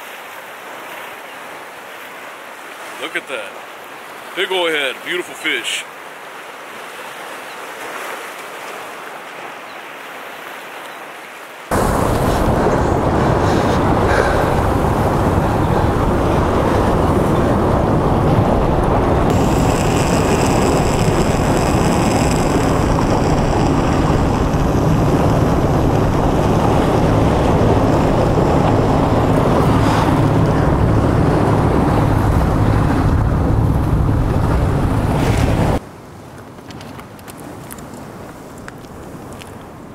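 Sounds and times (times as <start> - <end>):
surf rushing: 0.0 - 9.6, 11.7 - 35.8
wind buffeting microphone: 11.7 - 35.8.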